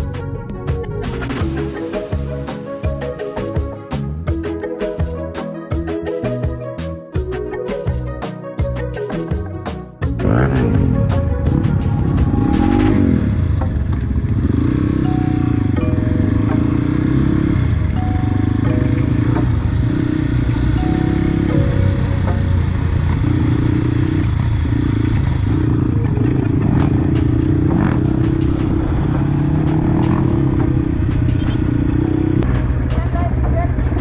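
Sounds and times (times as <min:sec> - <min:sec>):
background music: 0:00.0 - 0:34.0
dirt bike engine revving: 0:10.1 - 0:33.4.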